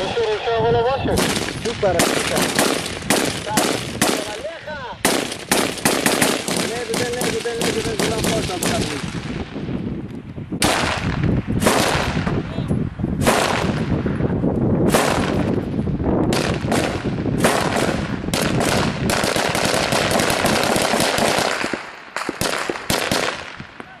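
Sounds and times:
gunfire shots and bursts: 0:01.2 - 0:09.5, 0:10.6 - 0:12.4, 0:13.2 - 0:14.1, 0:14.8 - 0:15.6, 0:16.3 - 0:24.0.

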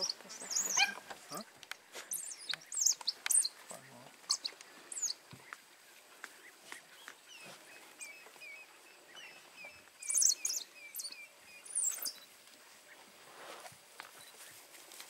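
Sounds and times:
sharp high bird calls: 0:00.0 - 0:01.5, 0:02.1 - 0:05.2, 0:06.7 - 0:12.3
birds chirping: 0:00.0 - 0:13.2, 0:13.8 - 0:15.0.

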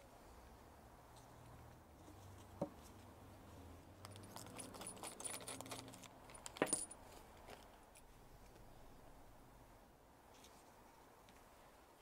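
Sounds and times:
metal tools clinking: 0:04.0 - 0:08.1.

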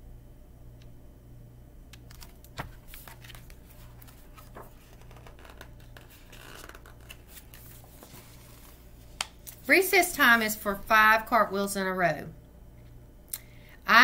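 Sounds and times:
steady low hum: 0:00.0 - 0:13.9
book pages turning: 0:02.0 - 0:09.7.

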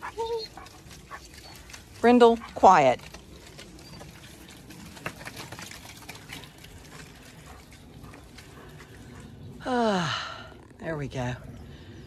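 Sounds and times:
footsteps squelching in mud: 0:00.0 - 0:09.5.

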